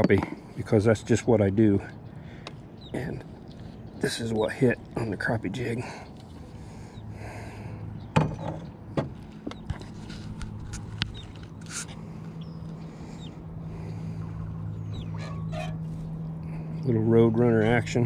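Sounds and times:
steady low hum: 0:00.0 - 0:18.0
knocks and rattles in a boat: 0:08.0 - 0:11.5.

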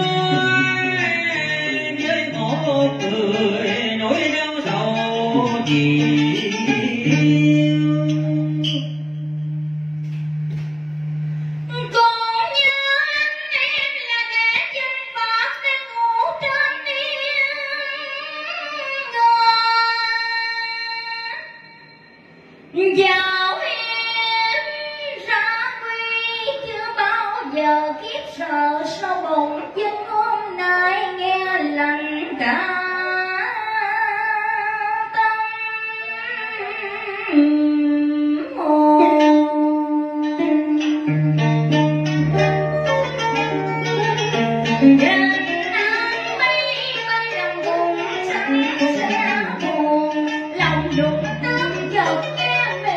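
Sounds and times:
low accompaniment tone: 0:00.0 - 0:12.0, 0:47.3 - 0:52.9
instrumental backing music: 0:00.0 - 0:14.8, 0:37.3 - 0:52.9
woman singing opera melody: 0:11.6 - 0:21.5, 0:22.8 - 0:40.8, 0:44.8 - 0:52.9.

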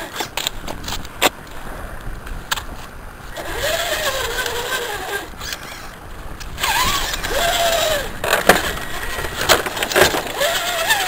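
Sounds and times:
toy truck motor whining: 0:03.3 - 0:06.0, 0:06.6 - 0:11.0.

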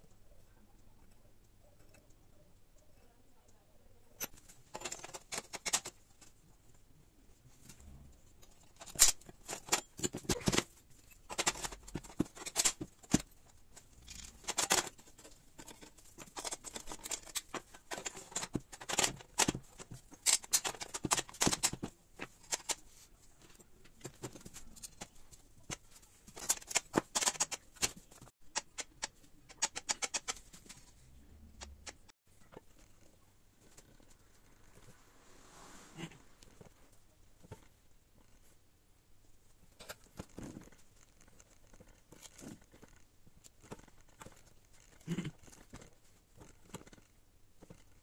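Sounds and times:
metal parts clicking and knocking: 0:04.2 - 0:06.4, 0:08.3 - 0:34.2, 0:39.7 - 0:48.0.

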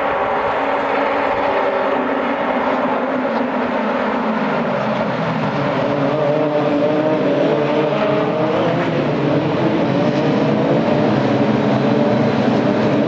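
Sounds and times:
race car engines revving: 0:00.0 - 0:13.0.

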